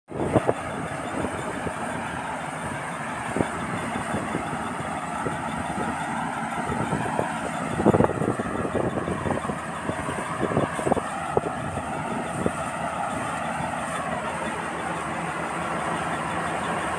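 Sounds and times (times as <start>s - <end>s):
combine harvester engine running: 0.1s - 16.9s.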